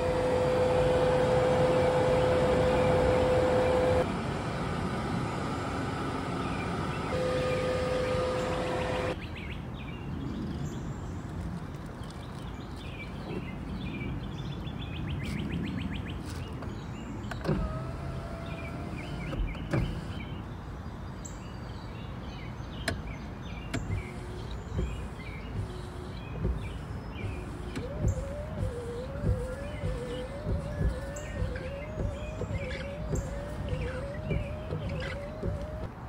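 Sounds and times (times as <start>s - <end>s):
birds chirping: 0.0s - 4.0s, 6.1s - 36.0s
power window motor whining: 0.0s - 9.2s, 17.2s - 20.4s, 23.7s - 36.0s.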